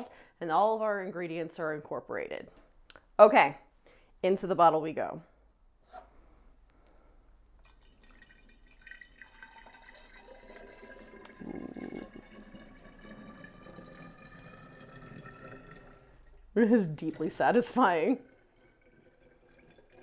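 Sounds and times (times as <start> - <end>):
liquid pouring into bottle: 7.6 - 20.0
rising tone of filling bottle: 7.7 - 20.0.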